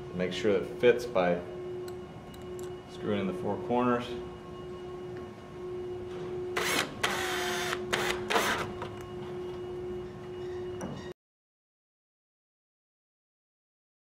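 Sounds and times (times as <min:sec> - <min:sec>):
cordless drill whirring: 0:06.6 - 0:08.7.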